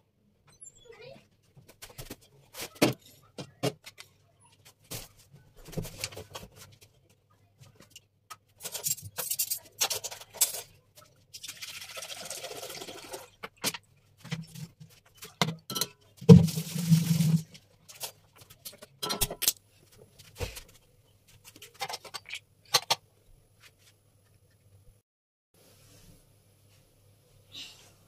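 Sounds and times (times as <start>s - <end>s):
milk pouring into pot: 11.4s - 13.4s.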